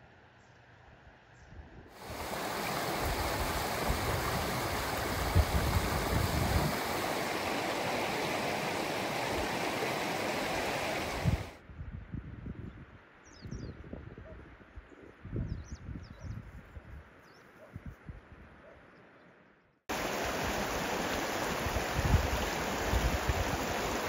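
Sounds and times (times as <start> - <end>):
stream rushing over rocks: 2.0 - 11.6, 19.9 - 24.0.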